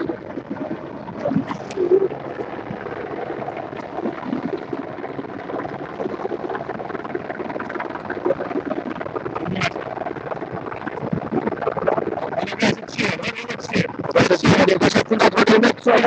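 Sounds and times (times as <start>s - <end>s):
water lapping against boat hull: 0.0s - 12.4s.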